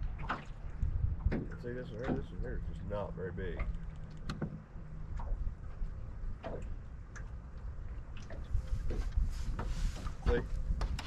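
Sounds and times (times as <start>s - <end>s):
wind buffeting microphone: 0.0s - 11.0s
light irregular clicks: 3.4s - 5.8s, 6.4s - 8.4s.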